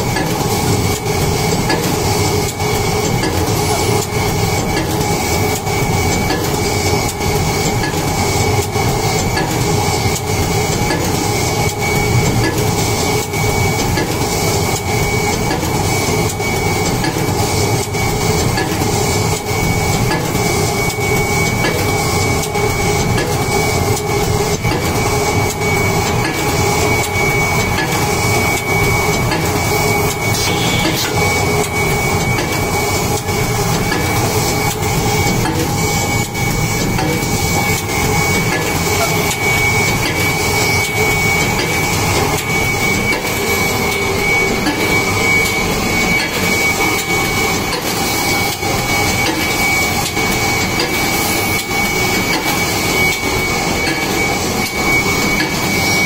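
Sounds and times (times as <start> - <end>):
thin high whine: 24.6 - 56.0.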